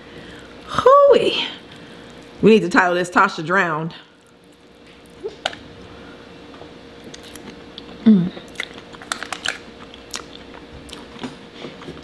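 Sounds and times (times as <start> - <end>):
wet chewing: 7.0 - 12.0.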